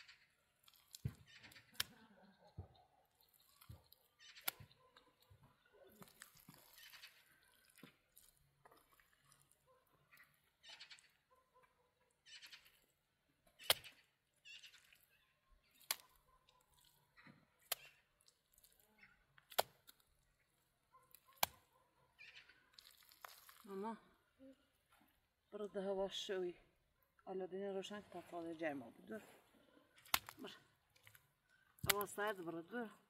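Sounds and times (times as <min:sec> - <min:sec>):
mud smacks: 0:00.0 - 0:02.0, 0:03.3 - 0:04.8, 0:06.0 - 0:09.4, 0:13.6 - 0:15.1, 0:15.7 - 0:21.7, 0:22.7 - 0:23.9, 0:30.0 - 0:32.6
wet mud squelching: 0:00.0 - 0:02.4, 0:03.0 - 0:11.2, 0:12.2 - 0:25.2, 0:27.8 - 0:33.0.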